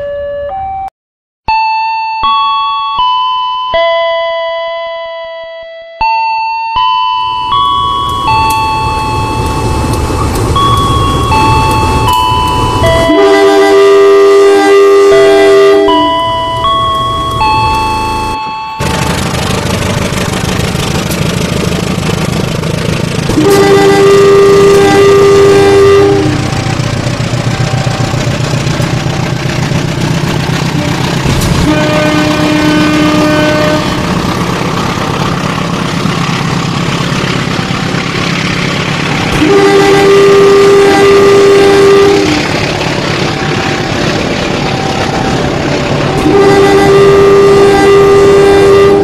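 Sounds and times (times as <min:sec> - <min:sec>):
electronic toy train horn: 0:10.6 - 0:18.6, 0:23.3 - 0:26.6, 0:30.8 - 0:34.1, 0:39.3 - 0:42.4, 0:46.1 - 0:49.0.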